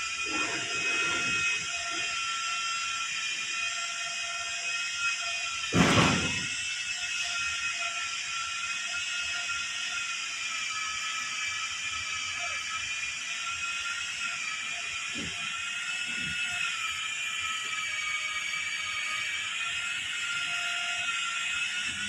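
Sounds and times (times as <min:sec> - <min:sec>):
loud thump-like noise burst: 0:05.7 - 0:06.5.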